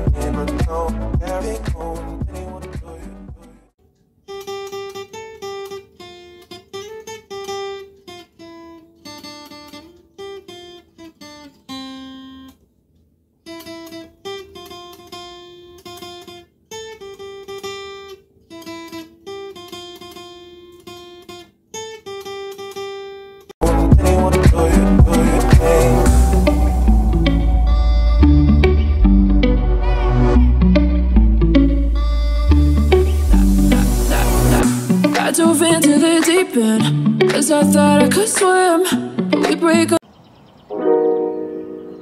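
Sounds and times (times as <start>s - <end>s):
acoustic guitar melody: 0.0s - 2.8s, 4.3s - 12.6s, 13.4s - 40.0s, 40.7s - 42.0s.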